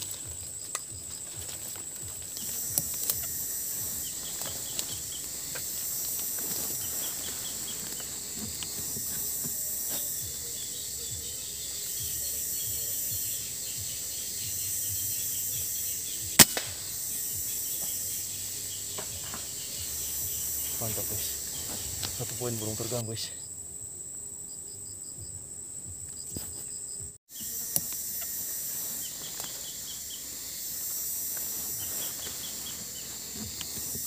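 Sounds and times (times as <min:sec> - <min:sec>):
high insect chorus: 0:00.0 - 0:34.0
air rifle shot: 0:16.4 - 0:16.9.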